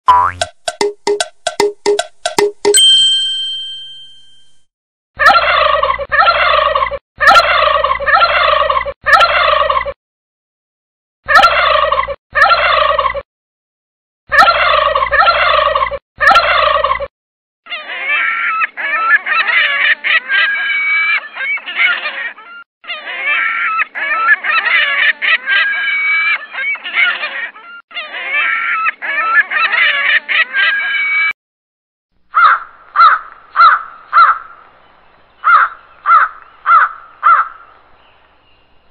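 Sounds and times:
turkey gobbling: 0:05.2 - 0:10.0, 0:11.3 - 0:13.2, 0:14.3 - 0:17.1, 0:32.4 - 0:34.6
overlapping higher bird calls: 0:32.3 - 0:38.9.

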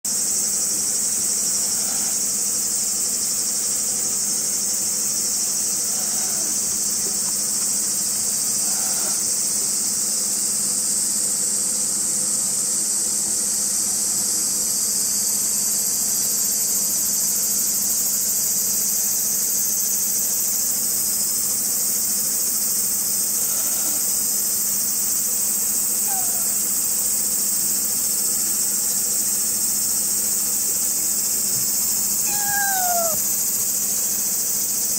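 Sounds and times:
insect chorus: 0:00.1 - 0:34.9
kitten mewing: 0:05.9 - 0:06.6, 0:26.0 - 0:26.6, 0:32.2 - 0:33.3.

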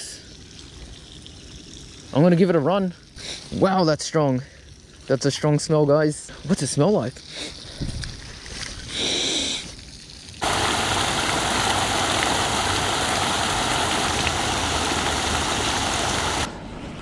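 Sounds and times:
water pouring from drain pipe: 0:00.0 - 0:05.8, 0:06.4 - 0:16.5
water splashing into river: 0:10.4 - 0:16.5.

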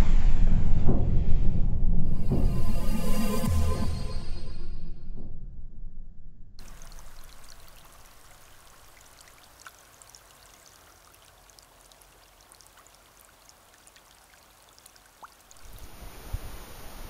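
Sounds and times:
small ticks like drips: 0:06.6 - 0:16.0
river water trickling between ice: 0:06.6 - 0:16.3
steady hiss: 0:06.6 - 0:17.0.

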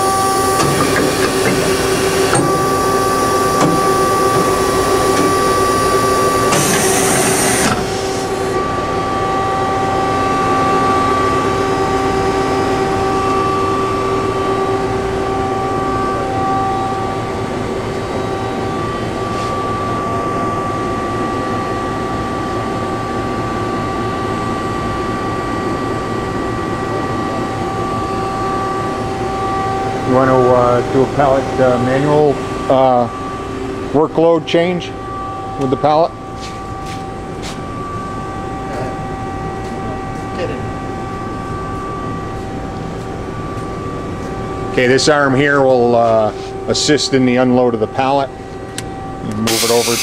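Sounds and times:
machine hum: 0:00.0 - 0:50.0
hiss: 0:49.5 - 0:50.0.

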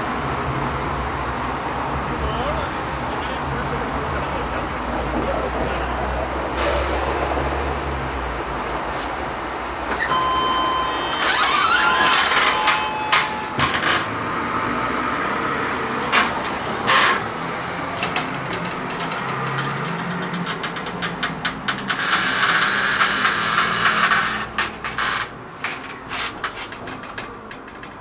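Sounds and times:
vehicles passing: 0:00.0 - 0:28.0
loud hiss with squealing: 0:22.0 - 0:25.3.

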